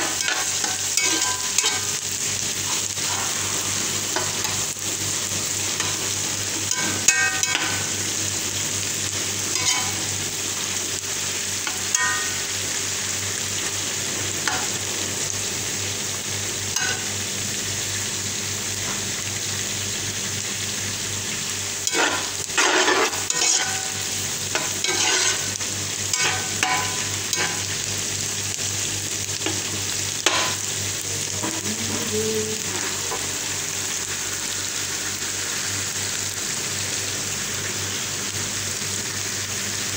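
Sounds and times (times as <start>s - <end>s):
onions sizzling in oil: 0.0s - 39.9s
spatula clinking against pan: 6.7s - 7.8s, 11.7s - 12.4s, 21.9s - 23.9s, 24.6s - 25.4s
spatula scraping pan: 9.5s - 10.1s, 21.8s - 27.8s.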